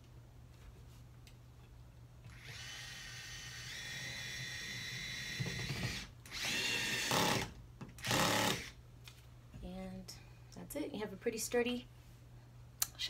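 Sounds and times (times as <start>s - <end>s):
cordless drill motor whine: 2.3s - 8.8s.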